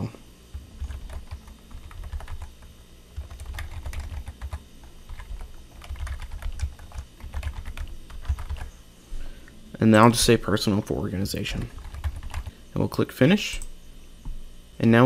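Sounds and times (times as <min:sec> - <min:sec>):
computer keyboard typing: 0:00.5 - 0:08.7, 0:11.5 - 0:12.5.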